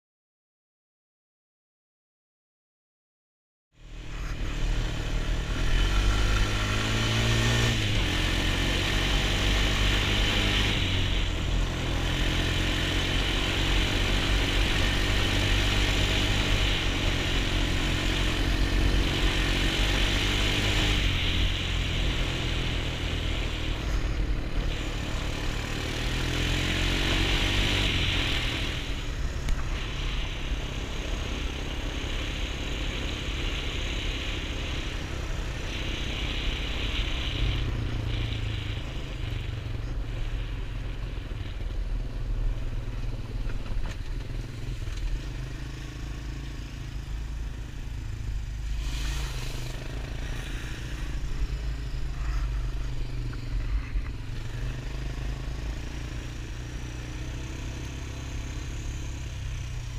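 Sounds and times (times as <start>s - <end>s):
quad engine running: 3.8s - 59.9s
rushing hiss: 16.8s - 41.3s, 46.8s - 56.2s.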